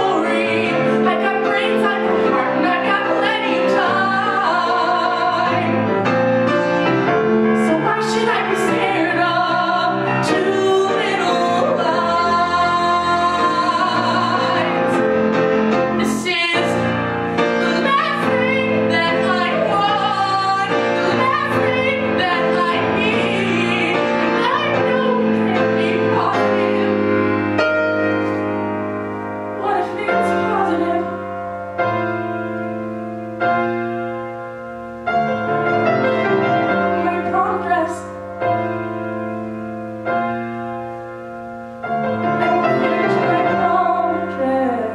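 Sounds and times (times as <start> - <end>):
woman singing pop song: 0.0 - 5.7, 7.6 - 15.0, 16.0 - 27.0, 29.6 - 31.2, 42.4 - 44.9
piano accompaniment: 0.0 - 44.9.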